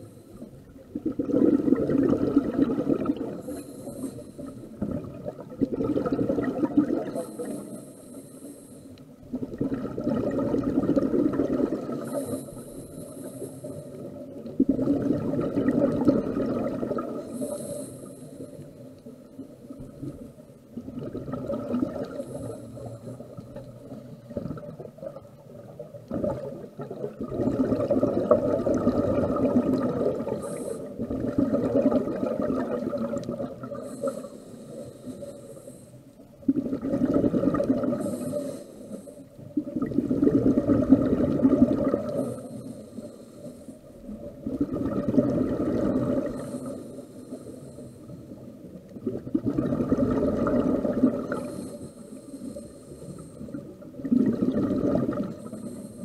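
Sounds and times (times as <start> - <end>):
bubbling exhalation underwater: 0.9 - 3.4, 4.8 - 7.2, 9.3 - 12.2, 14.5 - 17.3, 20.8 - 22.2, 24.2 - 33.9, 36.4 - 38.2, 39.5 - 42.3, 44.1 - 46.5, 49.0 - 51.6, 53.9 - 55.5
regulator inhalation hiss: 3.4 - 4.8, 7.1 - 9.1, 12.0 - 14.1, 17.2 - 18.9, 30.3 - 31.0, 33.7 - 36.2, 38.0 - 39.3, 42.1 - 44.0, 46.3 - 48.4, 51.3 - 53.7, 55.4 - 56.0.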